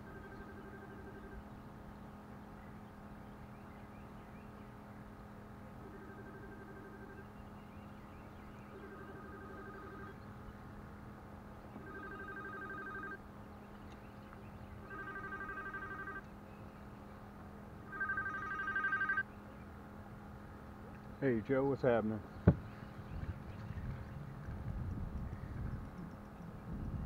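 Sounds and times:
mobile phone ringing: 0.0s - 1.4s, 5.8s - 7.2s, 8.7s - 10.2s, 11.8s - 13.2s, 14.8s - 16.2s, 17.8s - 19.3s.

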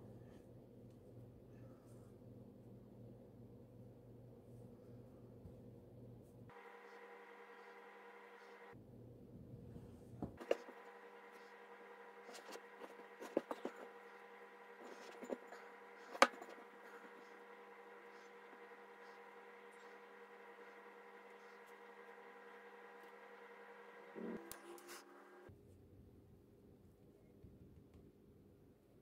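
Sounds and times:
steady hum: 3.0s - 25.5s.

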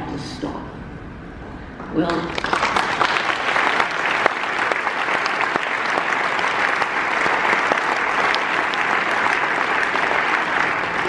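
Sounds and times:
large audience applauding: 2.1s - 11.0s.

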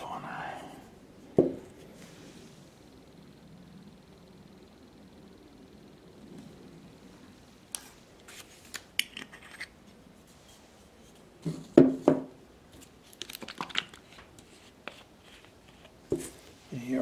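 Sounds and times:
bottles and supplies being handled: 7.8s - 16.6s.

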